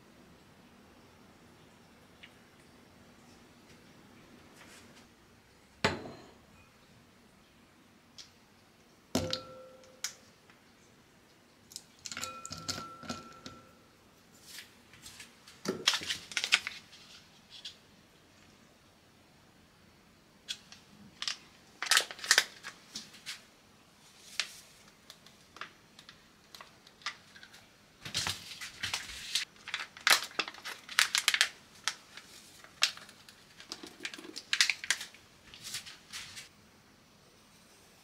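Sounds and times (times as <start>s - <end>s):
plastic pouch crinkling: 15.8s - 17.2s, 21.1s - 22.8s, 24.4s - 36.5s.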